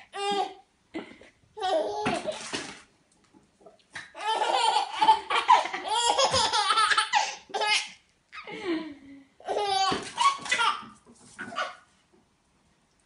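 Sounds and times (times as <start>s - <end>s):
baby laughing: 4.1s - 8.5s, 9.4s - 11.9s.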